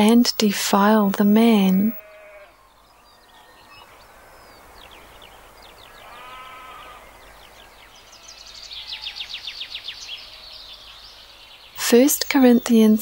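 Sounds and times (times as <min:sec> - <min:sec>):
lower bird call: 0:01.9 - 0:11.8
bird trilling song: 0:02.0 - 0:13.0.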